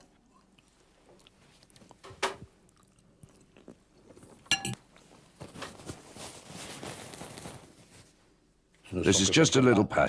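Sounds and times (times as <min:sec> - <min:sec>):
man chewing: 0:00.0 - 0:05.1.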